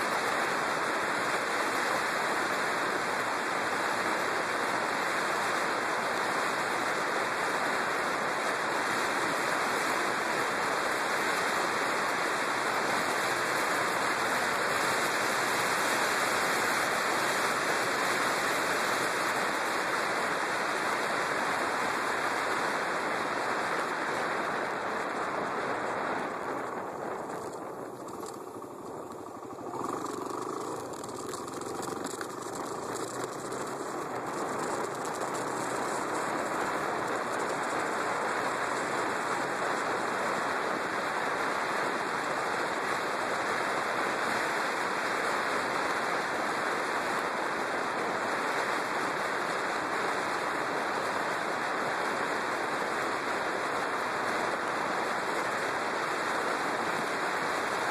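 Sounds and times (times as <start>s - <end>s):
wind rushing over microphone: 21.9s - 43.3s
motorcycle engine: 26.4s - 39.3s.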